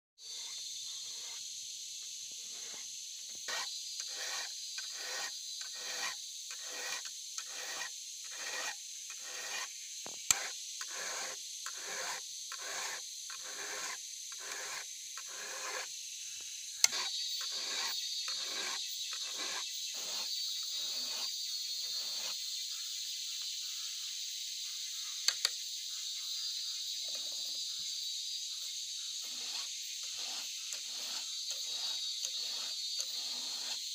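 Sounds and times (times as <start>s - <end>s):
file rasping on saw chain: 2.4s - 9.7s, 10.3s - 15.9s, 16.8s - 22.4s, 29.2s - 33.9s.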